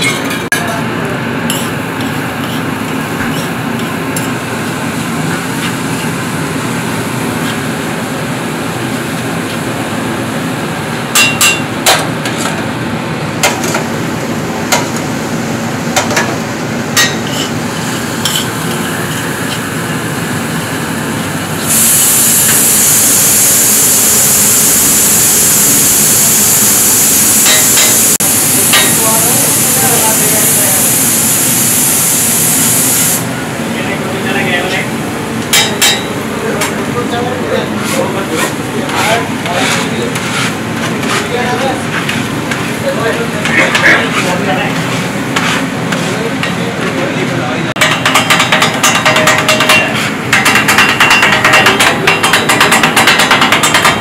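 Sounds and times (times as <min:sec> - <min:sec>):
metal spatula scraping griddle: 0:01.5 - 0:03.6, 0:17.1 - 0:19.3, 0:37.8 - 0:41.6, 0:43.6 - 0:46.2
loud sizzling hiss: 0:21.4 - 0:33.3.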